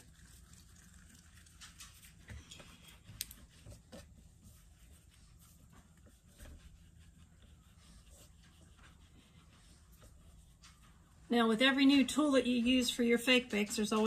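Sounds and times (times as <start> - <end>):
low room hum: 0.0 - 14.0
hands rubbing clay on tabletop: 1.5 - 11.2.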